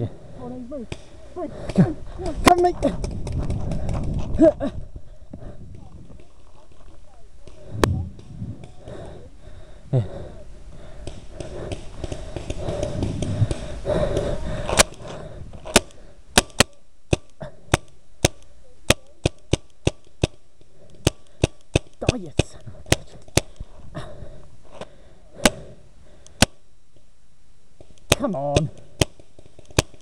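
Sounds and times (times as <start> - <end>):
rustling movement noise: 0.0 - 9.4, 19.8 - 28.1.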